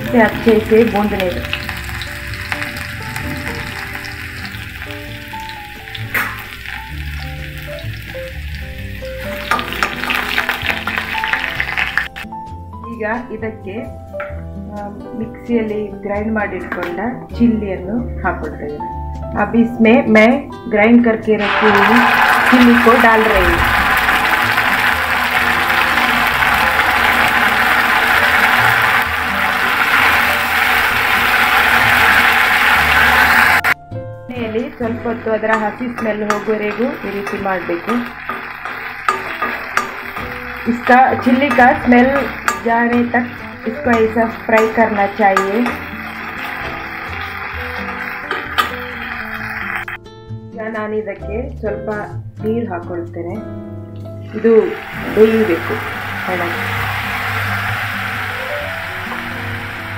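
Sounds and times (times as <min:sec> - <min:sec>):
garlic sizzling in hot oil: 0:00.0 - 0:12.3, 0:21.4 - 0:33.8, 0:34.4 - 0:50.0, 0:54.3 - 0:59.9
spoon scraping a pan: 0:35.5 - 0:50.0.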